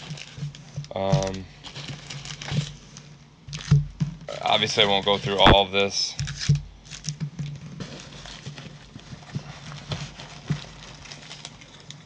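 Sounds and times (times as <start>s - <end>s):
plastic rustling: 0.0s - 12.0s.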